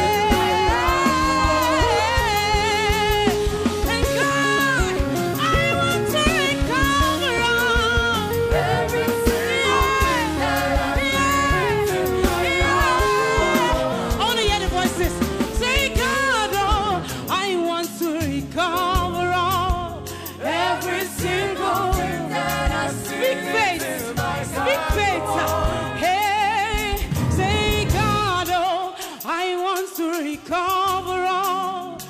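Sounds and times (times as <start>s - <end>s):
backing singers: 0.0s - 6.2s, 7.1s - 16.3s, 20.4s - 28.7s
steady beat: 0.0s - 16.2s
woman singing lead vocal: 0.0s - 32.0s.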